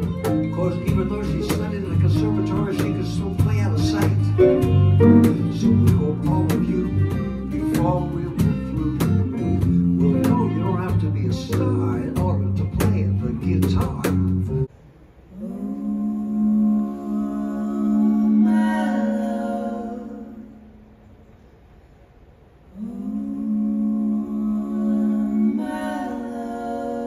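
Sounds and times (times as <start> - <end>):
fiddle: 0.0 - 13.1
person singing: 0.0 - 13.7
acoustic guitar: 0.0 - 14.7.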